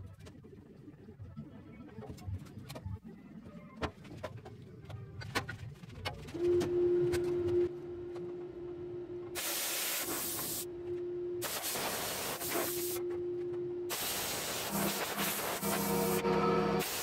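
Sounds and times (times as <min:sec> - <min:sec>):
steady hum: 0:06.3 - 0:17.0
welding arc hissing and crackling: 0:09.4 - 0:10.7, 0:11.4 - 0:13.0, 0:13.9 - 0:16.2, 0:16.8 - 0:17.0.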